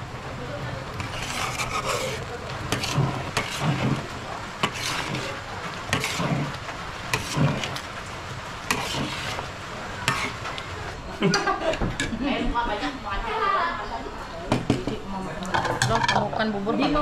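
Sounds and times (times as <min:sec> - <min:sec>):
light sizzle: 0:00.0 - 0:14.4
metal spatula scraping a wok: 0:00.9 - 0:07.8, 0:08.6 - 0:10.6.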